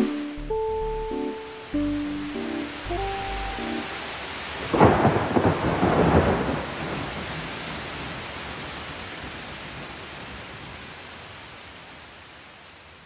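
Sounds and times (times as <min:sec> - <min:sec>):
steady rain: 0:00.0 - 0:13.0
rolling thunder: 0:04.6 - 0:07.5.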